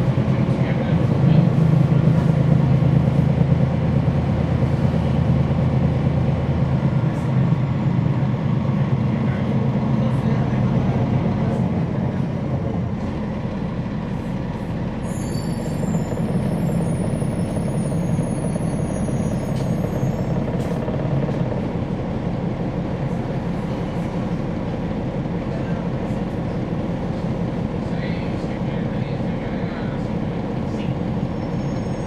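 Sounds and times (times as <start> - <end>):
bus diesel engine running: 0.0 - 32.0
high-pitched multi-tone squeal: 15.0 - 20.4, 31.3 - 32.0.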